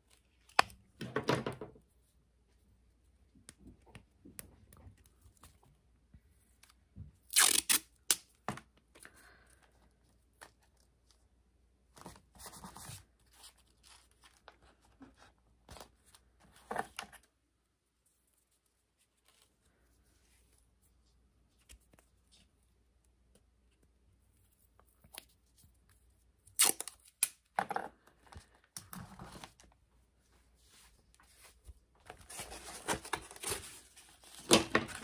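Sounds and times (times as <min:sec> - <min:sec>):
tape pulled off roll and torn: 0:07.2 - 0:08.4, 0:26.4 - 0:27.5.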